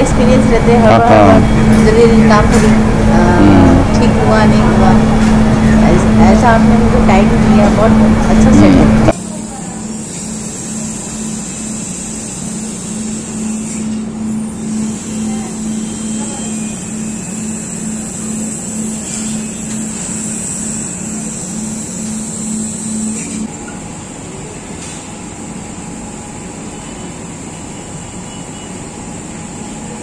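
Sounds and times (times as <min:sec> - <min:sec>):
low pulsing hum: 0:00.0 - 0:09.2
room noise whir: 0:00.0 - 0:30.0.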